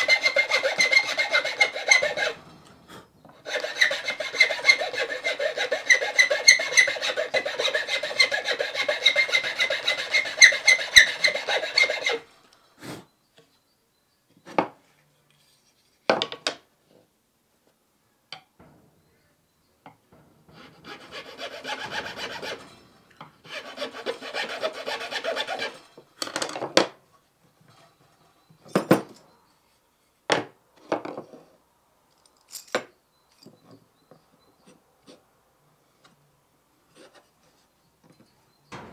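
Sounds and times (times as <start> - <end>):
file rasping on wood: 0.0 - 2.4, 3.5 - 12.3, 20.5 - 22.8, 23.5 - 25.8.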